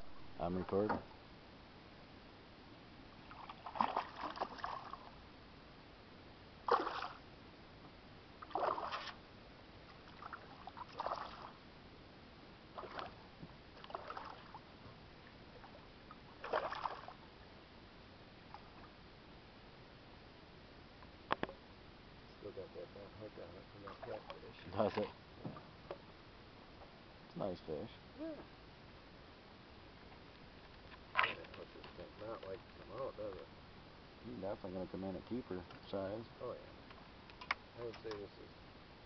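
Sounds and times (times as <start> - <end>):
water splashing against canoe: 3.3 - 5.1, 6.7 - 7.2, 8.4 - 9.2, 10.1 - 11.5, 12.7 - 13.2, 13.8 - 14.6, 16.4 - 17.2.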